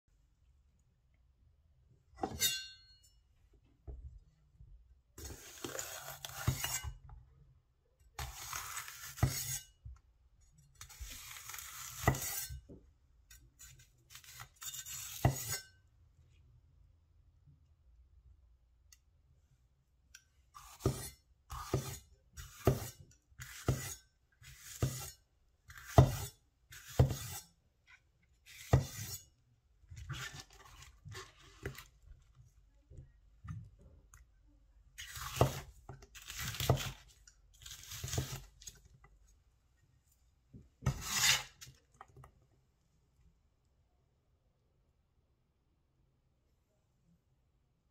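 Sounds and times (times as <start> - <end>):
cleaver cutting on wooden board: 40.8 - 41.6.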